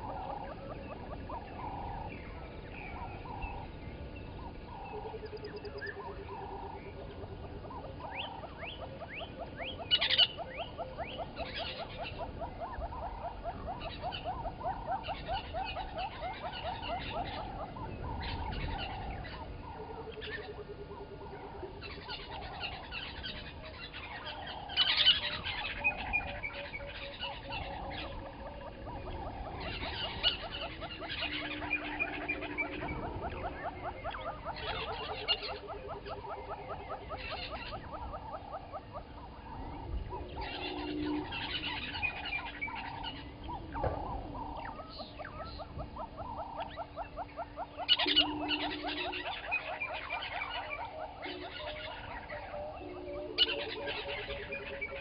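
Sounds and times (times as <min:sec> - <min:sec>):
wild birds calling and singing: 0:00.0 - 0:55.0.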